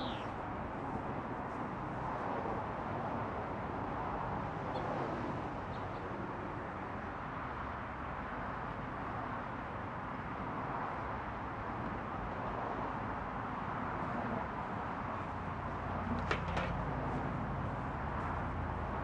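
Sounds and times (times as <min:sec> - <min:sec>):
faint bird chirps: 0:00.0 - 0:00.3
outdoor background noise: 0:00.0 - 0:19.0.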